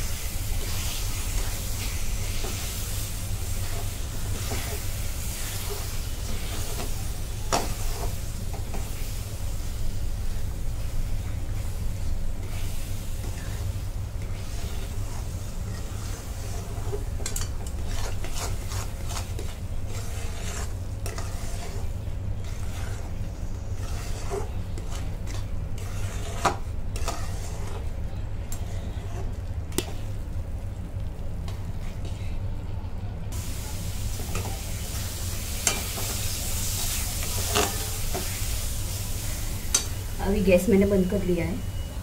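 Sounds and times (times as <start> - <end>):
frying sizzle: 0.0 - 28.0, 33.3 - 42.0
steady low hum: 0.0 - 42.0
metal spatula scraping a pan: 3.5 - 9.0, 12.4 - 27.9, 34.2 - 38.5.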